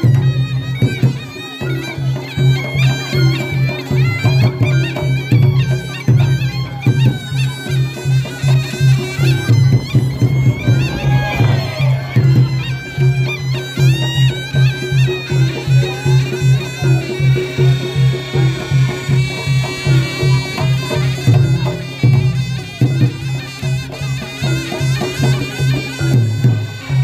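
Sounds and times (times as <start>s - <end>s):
drums and gongs pulsing beat: 0.0s - 27.0s
shawm playing wavering melody: 0.0s - 27.0s.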